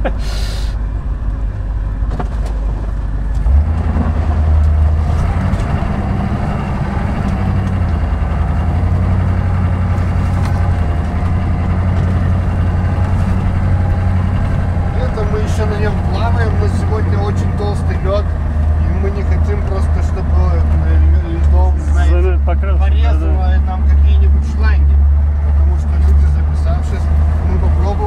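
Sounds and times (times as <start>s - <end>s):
truck engine running: 0.0s - 28.0s.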